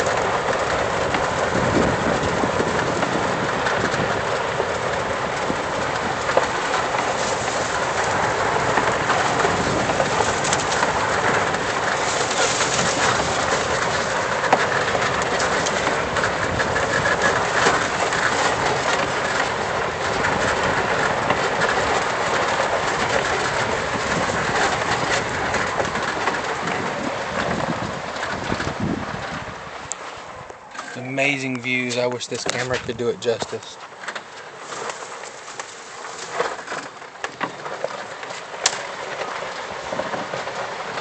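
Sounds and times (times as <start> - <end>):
cart rattling: 0.0 - 41.0
tyres crunching on gravel: 0.0 - 41.0.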